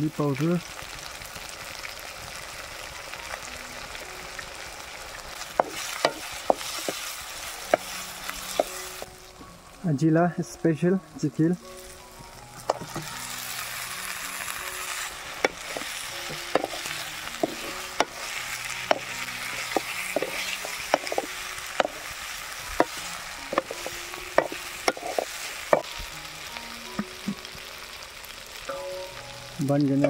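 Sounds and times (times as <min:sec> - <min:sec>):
chicken sizzling in a pan: 0:00.0 - 0:30.0.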